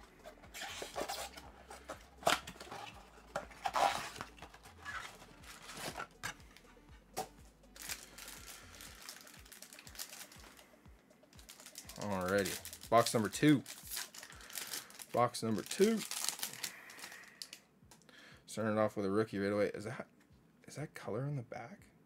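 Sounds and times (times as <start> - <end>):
plastic-wrapped packs rustling: 0.0 - 6.4, 7.2 - 10.7, 11.3 - 17.6.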